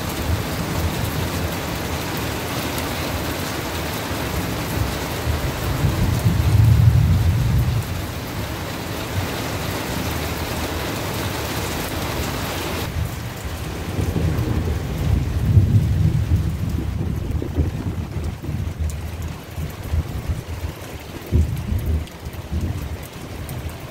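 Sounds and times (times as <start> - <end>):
steady rain hissing: 0.0 - 23.9
thunder rumbling: 4.2 - 10.5, 12.8 - 23.9.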